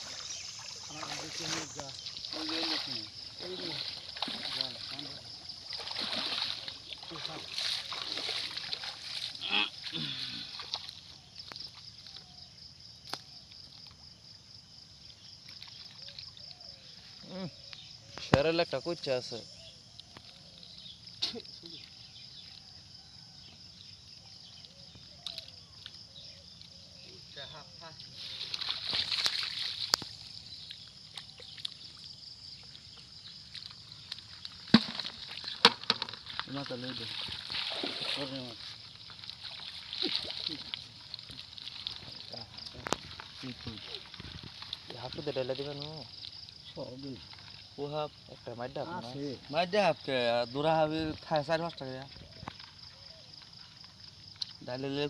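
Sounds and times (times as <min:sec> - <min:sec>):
water dripping: 0:00.0 - 0:12.3, 0:27.9 - 0:48.5
water sloshing and trickling: 0:00.0 - 0:54.8.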